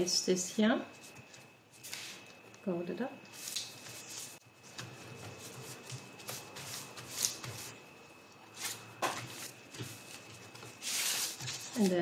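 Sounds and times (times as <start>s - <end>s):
paper rustling and crinkling: 3.3s - 7.8s, 8.5s - 12.0s.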